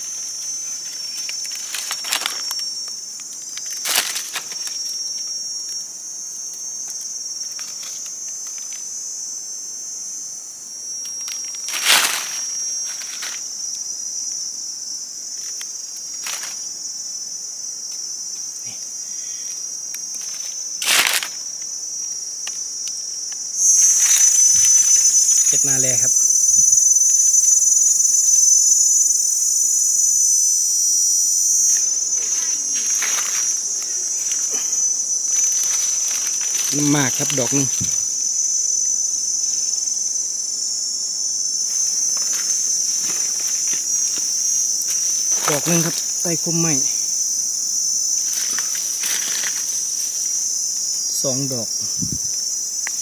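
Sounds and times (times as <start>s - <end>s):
insects buzzing: 0.0s - 53.0s
sharp crackles: 31.6s - 38.1s.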